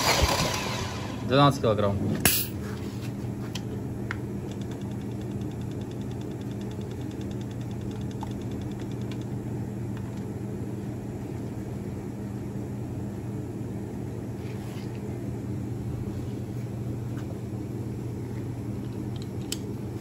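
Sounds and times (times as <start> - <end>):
low mechanical hum: 0.0 - 20.0
rapid light ticking: 4.5 - 9.4.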